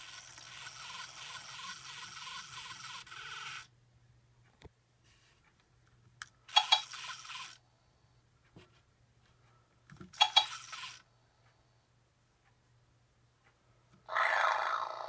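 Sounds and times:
toy electronic sounds: 0:00.0 - 0:03.7, 0:06.4 - 0:07.6, 0:10.1 - 0:11.0, 0:14.0 - 0:15.0.

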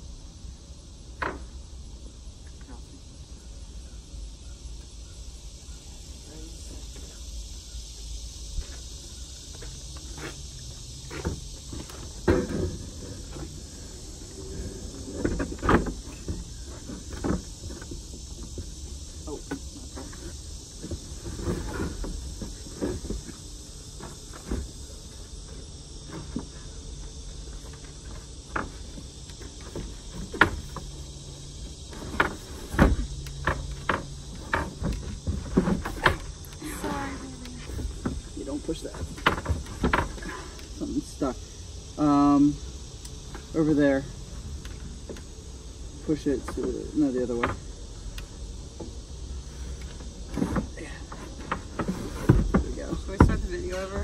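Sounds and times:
high insect drone: 0:00.0 - 0:54.0
wooden knocks and thuds: 0:01.2 - 0:01.5, 0:11.1 - 0:13.6, 0:27.6 - 0:31.0, 0:31.9 - 0:36.3, 0:38.9 - 0:40.5, 0:50.3 - 0:54.0.

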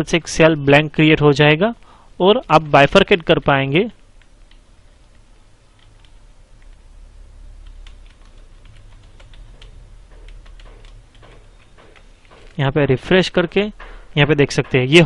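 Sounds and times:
faint low hum: 0:00.0 - 0:15.0
keyboard typing: 0:04.2 - 0:06.8, 0:07.6 - 0:12.6.

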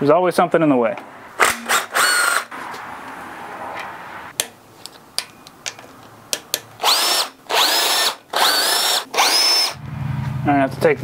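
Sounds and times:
cordless drill whining: 0:01.6 - 0:02.5, 0:06.8 - 0:09.8
metallic clicks and taps: 0:04.3 - 0:06.7.

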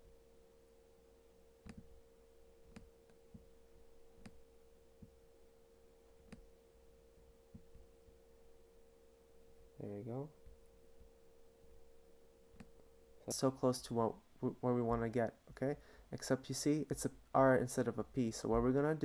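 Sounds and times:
faint hum: 0:00.0 - 0:19.0
computer mouse clicks: 0:01.6 - 0:02.0, 0:02.7 - 0:03.4, 0:04.2 - 0:04.4.

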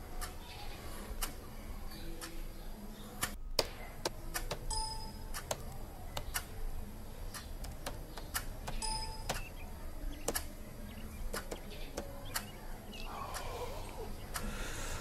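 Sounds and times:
laptop keyboard typing: 0:03.2 - 0:06.6, 0:07.2 - 0:10.6, 0:11.3 - 0:12.6.

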